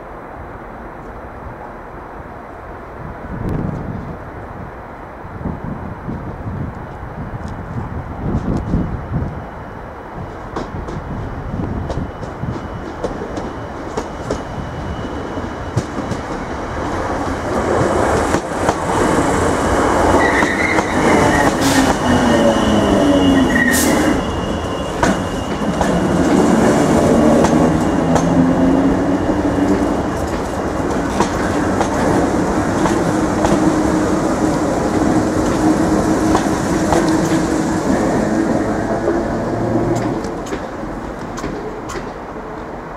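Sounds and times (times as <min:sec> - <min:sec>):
train wheels clicking over rail joints: 0:15.7 - 0:24.1, 0:24.9 - 0:42.7
train whine falling in pitch: 0:18.1 - 0:40.8
wheel squeals: 0:20.1 - 0:31.7.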